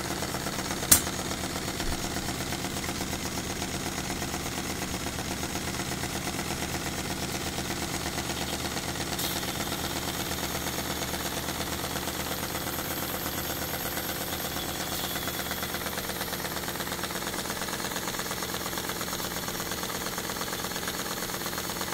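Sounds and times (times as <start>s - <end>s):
steam engine mechanical beat: 0.7s - 6.2s
steam hiss: 9.0s - 10.9s.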